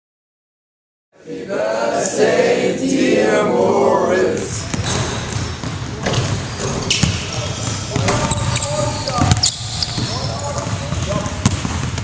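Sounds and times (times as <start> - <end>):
young people's voices: 1.2 - 4.8
basketballs bouncing on hardwood floor: 4.6 - 12.0.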